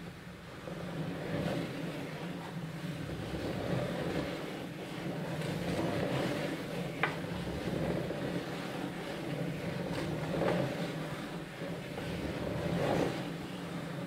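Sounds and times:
wooden gears rumbling: 0:02.8 - 0:14.0
pen dragging over paper: 0:03.0 - 0:14.0.

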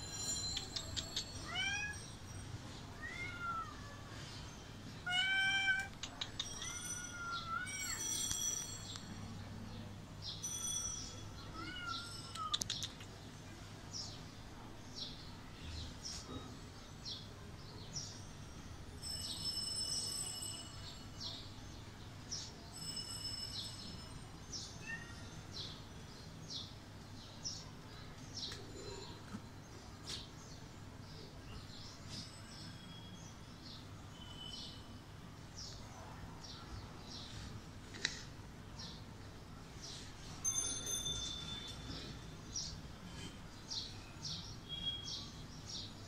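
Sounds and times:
small birds chirping: 0:00.2 - 0:02.4, 0:10.2 - 0:14.4.

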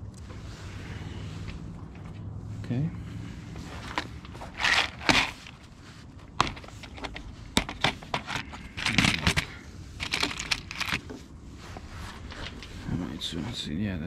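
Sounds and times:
rustling: 0:00.1 - 0:13.7
plastic case clicks and rattling: 0:06.4 - 0:11.0.

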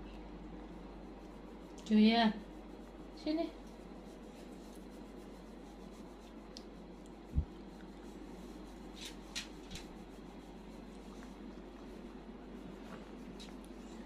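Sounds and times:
hand rubbing dog fur: 0:00.9 - 0:14.0.

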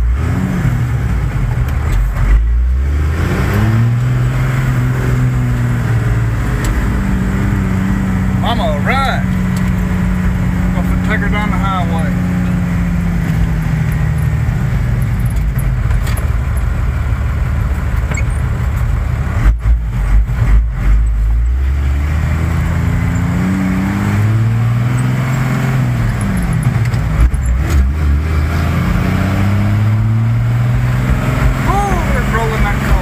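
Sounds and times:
diesel truck engine accelerating: 0:00.0 - 0:33.0
heavy low thuds: 0:30.0 - 0:31.7.

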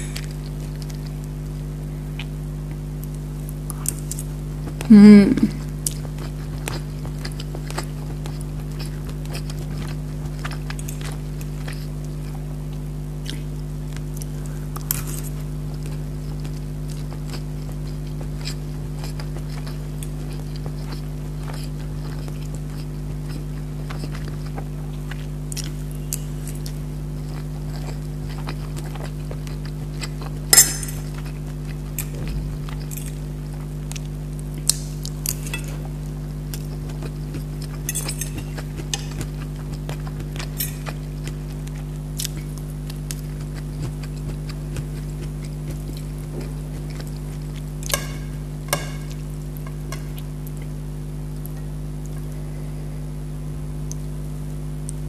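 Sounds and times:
background hum: 0:00.0 - 0:55.0
chewing: 0:05.6 - 0:50.8
fork clicking on plates: 0:30.6 - 0:31.3, 0:34.7 - 0:35.8, 0:37.9 - 0:39.3, 0:47.8 - 0:50.2.

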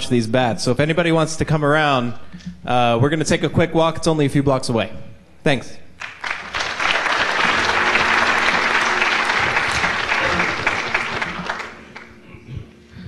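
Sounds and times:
audience applauding: 0:06.0 - 0:12.4.

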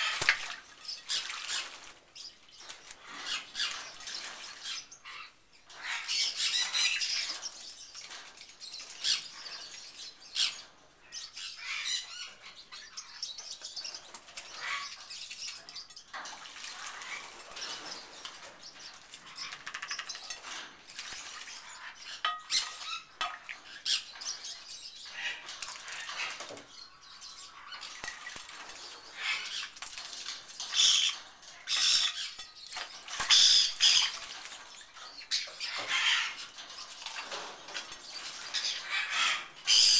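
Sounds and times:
bird wings splashing water: 0:00.0 - 0:02.1, 0:16.2 - 0:22.0, 0:27.9 - 0:31.1, 0:32.8 - 0:35.0.

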